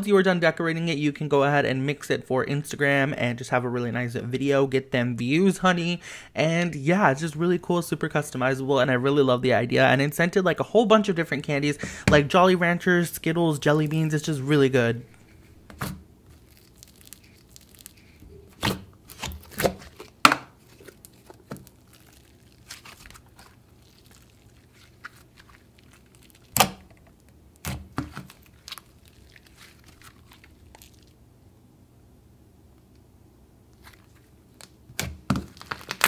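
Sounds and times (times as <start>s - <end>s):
slime crackling and popping: 15.7s - 31.2s, 33.8s - 36.0s.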